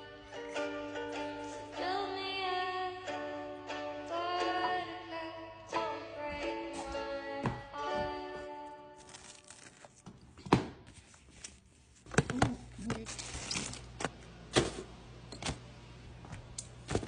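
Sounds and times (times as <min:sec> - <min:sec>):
plastic cling wrap crinkling: 0:08.9 - 0:10.2, 0:10.9 - 0:14.0.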